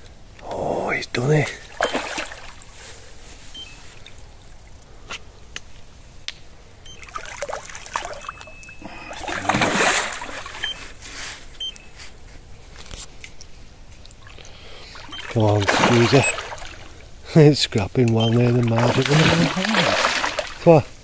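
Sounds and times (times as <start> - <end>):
fish thrashing and splashing: 1.6 - 2.8, 6.9 - 11.0, 14.1 - 17.1, 18.2 - 20.7.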